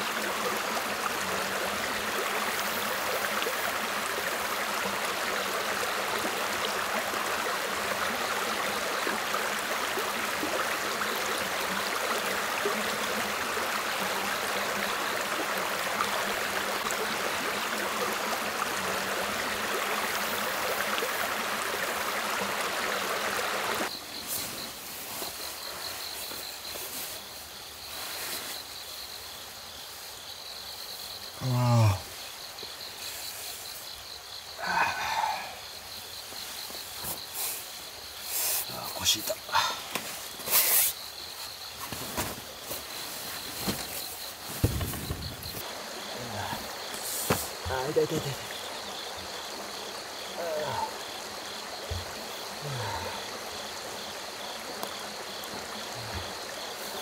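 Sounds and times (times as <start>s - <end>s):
stream rushing over stones: 0.0s - 28.7s, 34.6s - 57.0s
night insects trilling: 0.0s - 57.0s.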